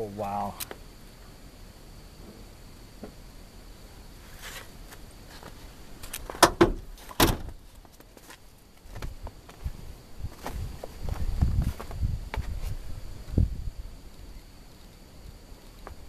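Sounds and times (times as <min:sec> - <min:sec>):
car door clunking on steel body: 0:06.3 - 0:07.6.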